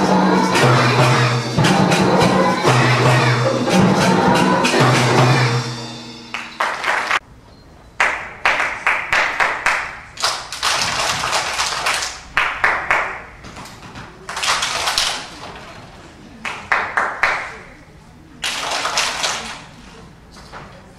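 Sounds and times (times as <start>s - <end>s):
children clapping: 6.3s - 7.2s, 8.0s - 15.8s, 16.4s - 17.7s, 18.4s - 19.8s.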